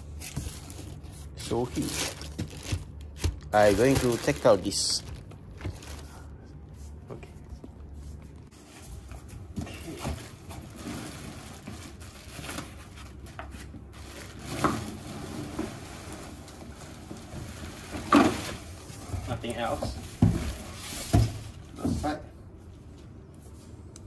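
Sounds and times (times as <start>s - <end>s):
plastic packaging rustling: 0.0s - 6.4s, 9.7s - 21.6s.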